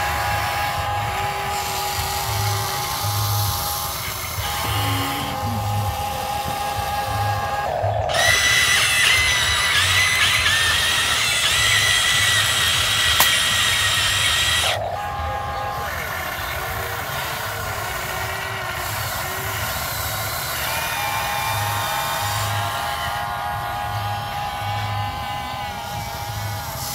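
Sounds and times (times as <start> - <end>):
electric hydraulic pump whining: 0.0 - 26.9
sharp click: 13.0 - 14.7.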